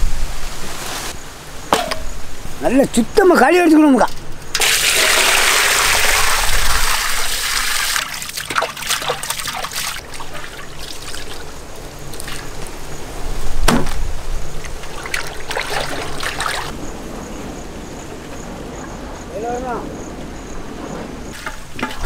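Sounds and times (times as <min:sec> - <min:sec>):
water gushing and splashing: 0:00.6 - 0:19.3, 0:19.9 - 0:22.0
drips and splashes: 0:03.6 - 0:12.9, 0:14.4 - 0:16.8, 0:21.3 - 0:22.0
thump: 0:13.6 - 0:14.0.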